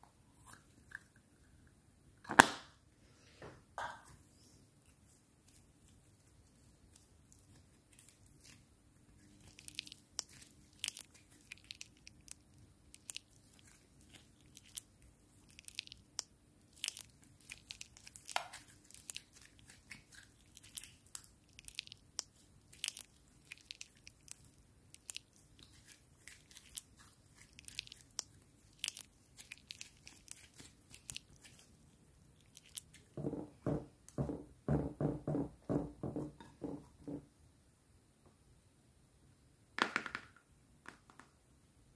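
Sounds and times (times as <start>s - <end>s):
slime squishing: 4.8s - 33.6s
slime clicking and popping: 9.4s - 31.7s, 32.4s - 33.0s.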